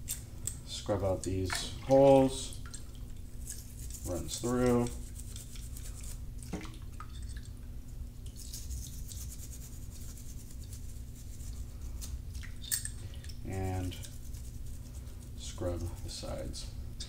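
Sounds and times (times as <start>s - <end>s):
steady low hum: 0.0s - 17.0s
brush scrubbing: 3.4s - 6.2s, 8.3s - 12.4s, 13.5s - 16.6s.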